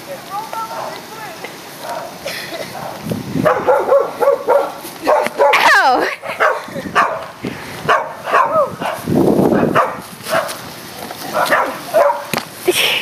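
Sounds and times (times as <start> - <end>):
dog barking: 1.8 - 2.1, 2.7 - 7.3, 7.9 - 10.6, 11.3 - 12.3.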